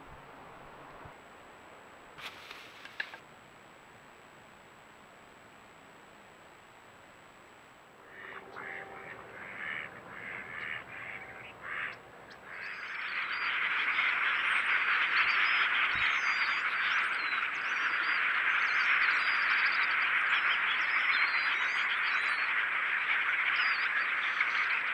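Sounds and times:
flock of small birds calling: 8.1s - 24.9s.

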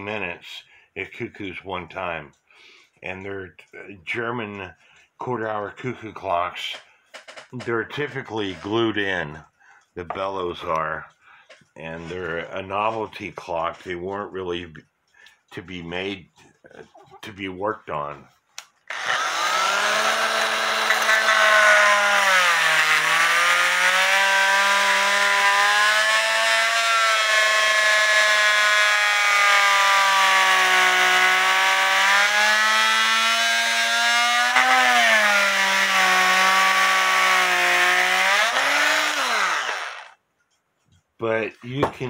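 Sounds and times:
oscillating multi-tool running: 18.9s - 21.2s, 32.8s - 40.2s.

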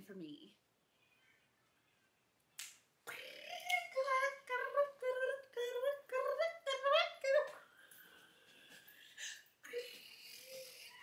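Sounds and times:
finger snap: 2.5s - 4.0s
person singing a melody: 3.1s - 7.7s.

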